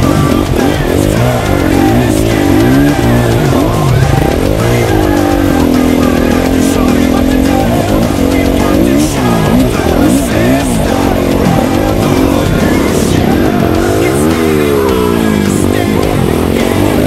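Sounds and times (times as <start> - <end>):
dirt bike engine revving: 0.0 - 17.0
music playing: 0.0 - 17.0.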